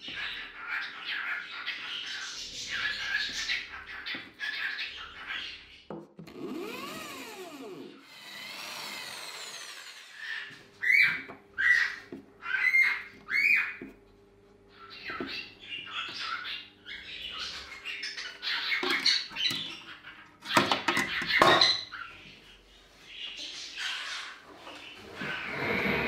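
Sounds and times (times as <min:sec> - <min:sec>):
bird squawks: 0:00.0 - 0:05.9, 0:10.1 - 0:13.9, 0:14.7 - 0:26.0
pet birds chirping: 0:00.0 - 0:06.0, 0:10.2 - 0:26.0
electric drill boring into wood: 0:06.2 - 0:10.6, 0:25.5 - 0:26.0.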